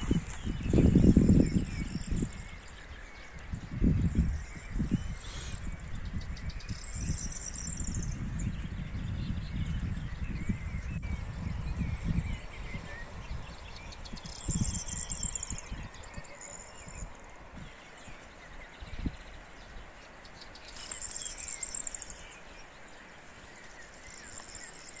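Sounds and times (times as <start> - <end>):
songbirds trilling and chirping: 0.0 - 25.0
wind gusts on microphone: 0.0 - 25.0.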